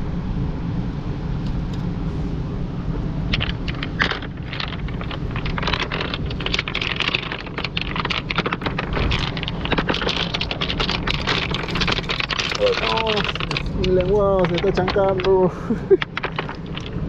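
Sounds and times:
steady low rumble: 0:00.0 - 0:17.0
pebbles clacking together: 0:03.3 - 0:17.0.

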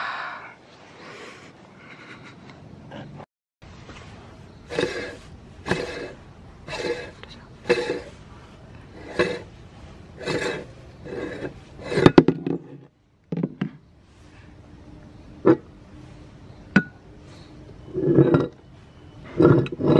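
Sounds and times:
metal parts scraping and rubbing: 0:04.6 - 0:12.9, 0:17.2 - 0:19.9.

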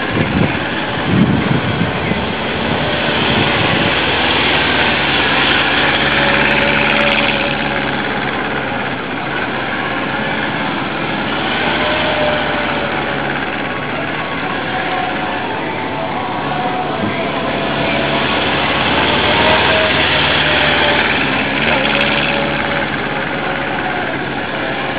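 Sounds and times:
motorcycle engines running: 0:00.0 - 0:24.9.

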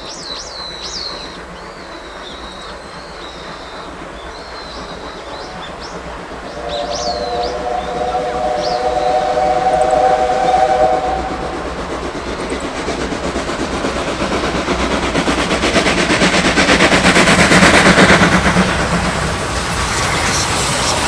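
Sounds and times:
steam locomotive exhaust chuffs: 0:00.0 - 0:21.0
steam whistle: 0:05.3 - 0:12.2.

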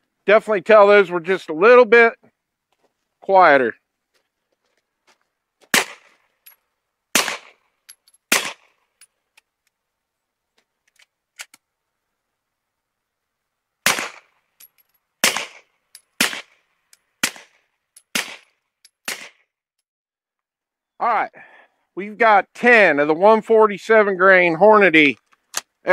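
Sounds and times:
suppressed pistol shots: 0:05.7 - 0:06.2, 0:07.2 - 0:07.6, 0:08.3 - 0:08.7, 0:13.8 - 0:14.3, 0:15.2 - 0:16.6, 0:17.2 - 0:18.5, 0:19.1 - 0:19.4.

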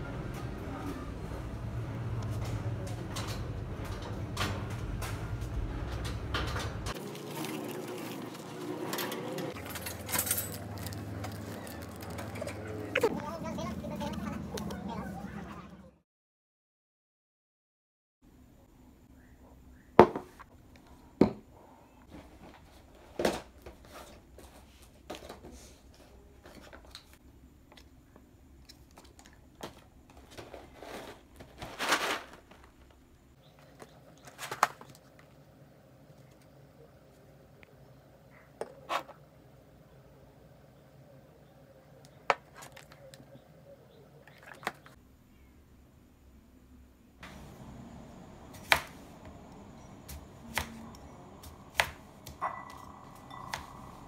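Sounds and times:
packaging rustling: 0:09.6 - 0:12.6
knife chopping on wooden board: 0:50.1 - 0:50.9, 0:51.7 - 0:52.8.

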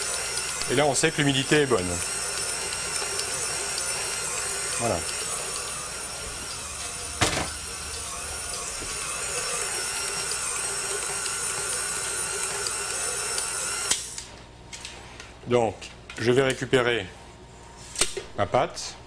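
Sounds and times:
stand mixer motor running: 0:00.0 - 0:14.2.

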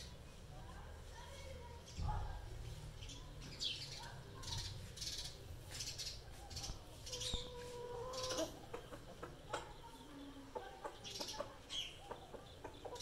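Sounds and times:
birds chirping: 0:00.0 - 0:13.0
held steady bird call: 0:03.1 - 0:13.0.

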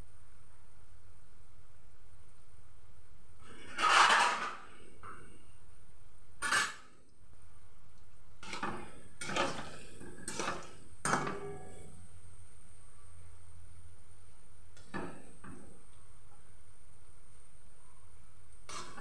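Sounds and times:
metal spatula scraping a wok: 0:03.4 - 0:05.0, 0:06.4 - 0:06.9, 0:08.4 - 0:12.0, 0:18.7 - 0:19.0
deep frying sizzle: 0:08.1 - 0:12.8, 0:13.4 - 0:17.6.

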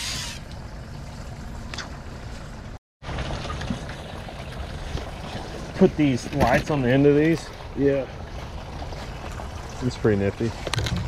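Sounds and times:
boat engine low rumble: 0:00.0 - 0:11.0
water noise: 0:00.0 - 0:11.0.

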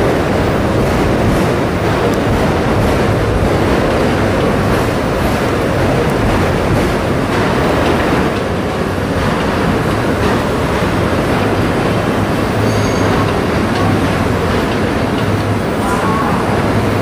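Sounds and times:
train wheels rumbling on rail: 0:00.0 - 0:17.0
wheels clicking over rail joints: 0:00.0 - 0:17.0
high wheel squeal: 0:12.5 - 0:13.4.

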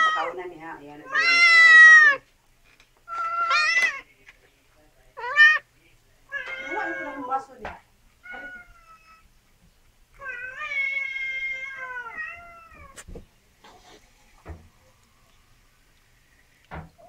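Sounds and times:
cat meowing: 0:01.0 - 0:02.2, 0:03.1 - 0:04.0, 0:05.2 - 0:05.7, 0:06.3 - 0:07.3, 0:08.2 - 0:09.3, 0:10.2 - 0:13.0.

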